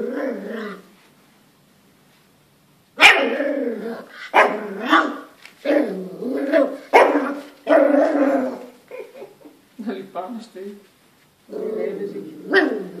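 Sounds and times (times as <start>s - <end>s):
small dog barking: 3.0s - 3.4s, 4.3s - 5.3s, 6.5s - 8.5s.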